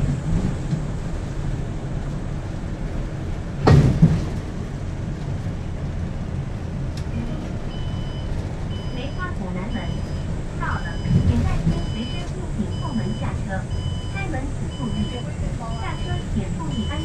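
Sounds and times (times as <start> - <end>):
bus engine and road rumble: 0.0 - 17.0
loud clunk: 3.6 - 4.4.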